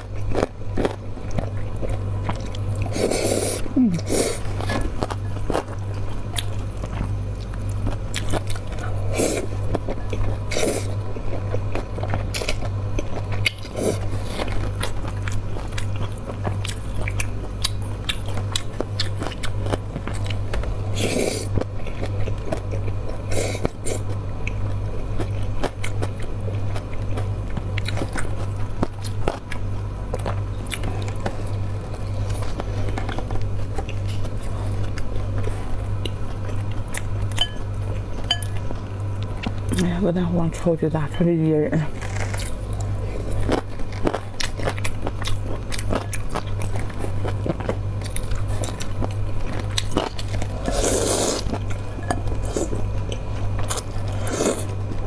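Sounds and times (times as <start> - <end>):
person chewing noodles: 0.0 - 39.9, 42.0 - 55.0.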